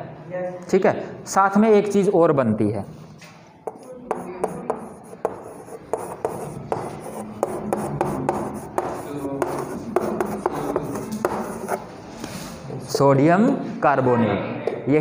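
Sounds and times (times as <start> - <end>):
chalk tapping and scratching on blackboard: 3.6 - 12.5.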